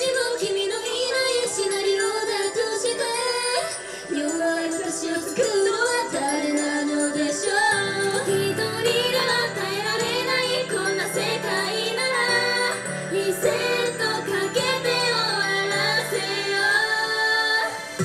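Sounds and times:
woman singing pop song: 0:00.0 - 0:18.0.

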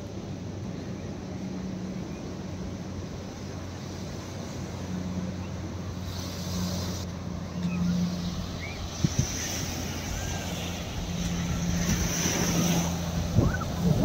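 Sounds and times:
low engine drone: 0:00.0 - 0:14.0
outdoor noise: 0:00.0 - 0:14.0
hiss: 0:05.9 - 0:07.1, 0:07.9 - 0:14.0.

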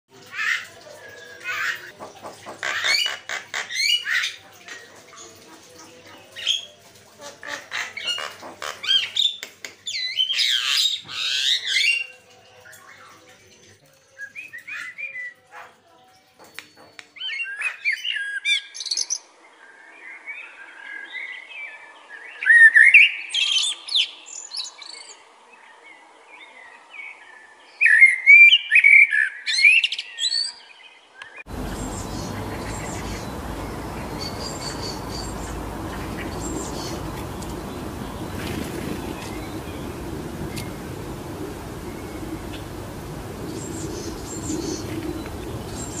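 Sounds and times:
blackbird song: 0:07.4 - 0:46.0
faint steady hiss: 0:31.5 - 0:46.0
myna chattering and whistled calls: 0:31.5 - 0:46.0.

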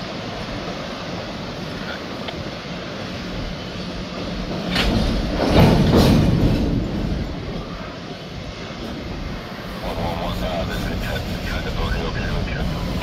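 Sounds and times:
freight train wheels clattering: 0:01.6 - 0:09.8.

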